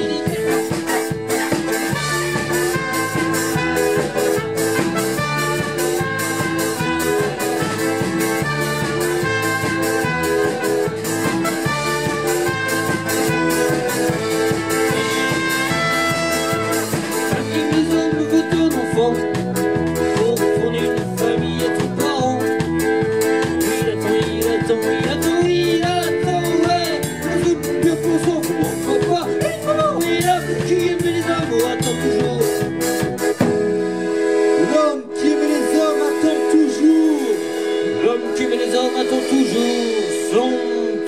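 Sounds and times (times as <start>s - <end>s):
trumpet: 0.0s - 18.9s, 27.8s - 41.0s
accordion: 0.0s - 41.0s
drum kit beat: 0.0s - 41.0s.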